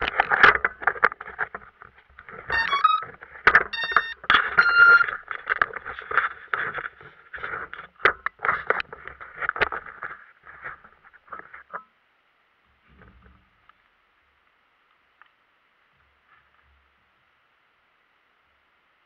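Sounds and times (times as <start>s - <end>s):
muffled knocking and scraping: 0.0s - 11.8s
short electronic beeps: 2.5s - 3.0s, 3.7s - 5.1s.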